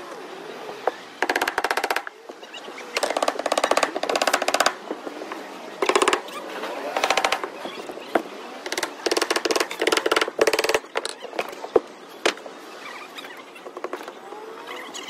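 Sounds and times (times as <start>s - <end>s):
faint squeaks: 10.6s - 15.0s.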